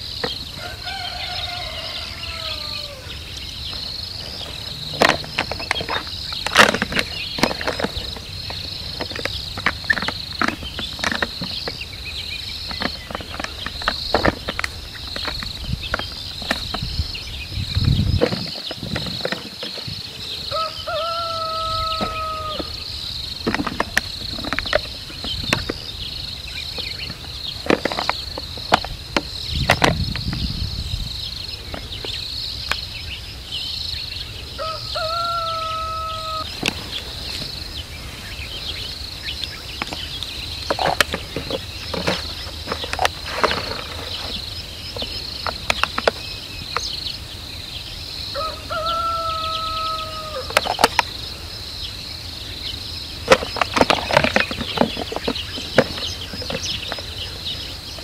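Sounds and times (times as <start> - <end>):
insects trilling: 0.0 - 58.0
lioness biting plastic bottle: 40.6 - 44.4.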